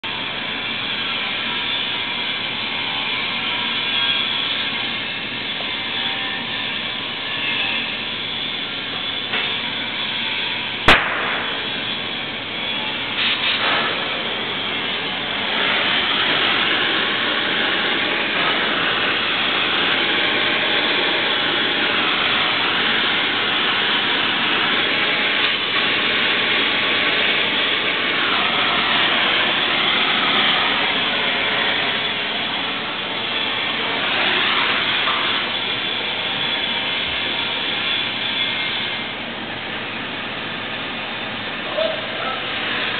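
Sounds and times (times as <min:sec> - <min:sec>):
cutting torch hissing: 0:00.1 - 0:42.9
torch lighting pop: 0:10.8 - 0:12.0, 0:13.2 - 0:14.2.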